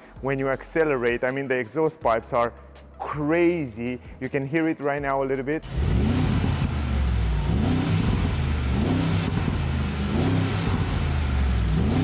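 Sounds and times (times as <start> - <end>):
engine revving in blips: 5.6 - 12.0.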